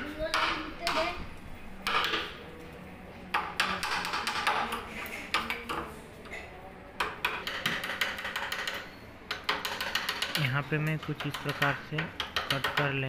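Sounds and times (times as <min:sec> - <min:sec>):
hammer striking wood chisel: 0:00.3 - 0:01.1, 0:01.8 - 0:02.4, 0:03.3 - 0:05.9, 0:07.0 - 0:13.0.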